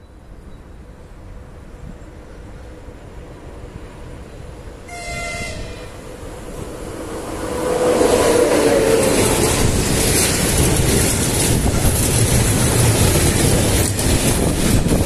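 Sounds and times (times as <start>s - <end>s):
train rumbling past: 0.0s - 15.0s
locomotive horn blast: 4.9s - 6.2s.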